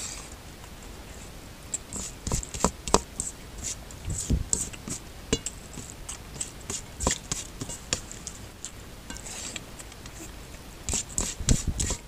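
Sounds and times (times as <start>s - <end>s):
fingers squishing wet rice: 1.8s - 12.0s
fingertips scraping metal plate: 10.9s - 12.0s.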